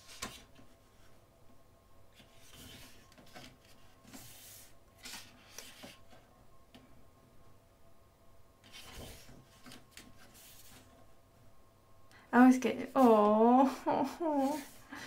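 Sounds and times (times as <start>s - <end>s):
book pages turning: 0.0s - 1.1s, 2.2s - 6.1s, 8.6s - 10.9s.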